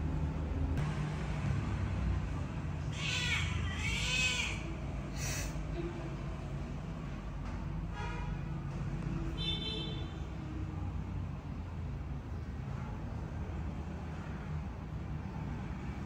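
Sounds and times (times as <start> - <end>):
cat meowing: 2.9 - 4.7.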